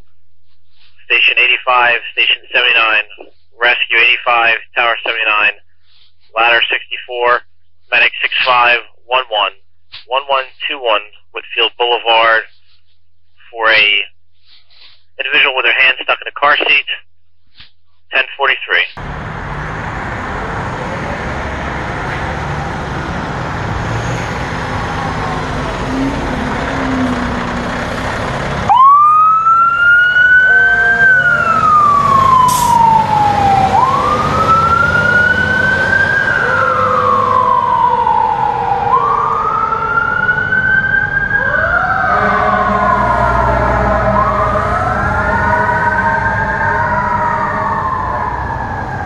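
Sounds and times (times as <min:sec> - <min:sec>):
fire truck engine rumbling: 0:18.5 - 0:49.0
wailing siren: 0:19.2 - 0:49.0
lower siren tone: 0:28.6 - 0:49.0.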